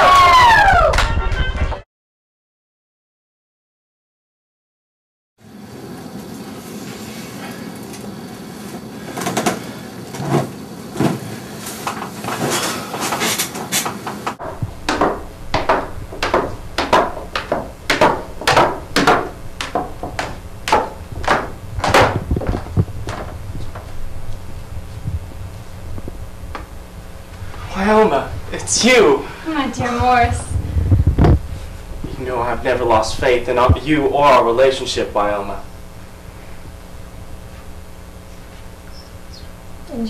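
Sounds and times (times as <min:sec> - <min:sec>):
scattered knocks and rustles: 0:09.2 - 0:25.3
footsteps on hard floor: 0:14.4 - 0:25.3.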